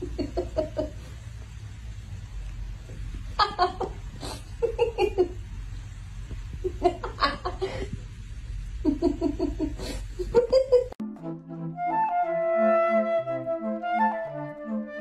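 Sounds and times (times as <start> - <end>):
person laughing: 0.0 - 1.0, 3.4 - 5.4, 6.6 - 8.0, 8.8 - 11.0
low steady rumble: 0.0 - 11.0
woodwind melody music: 11.0 - 15.0.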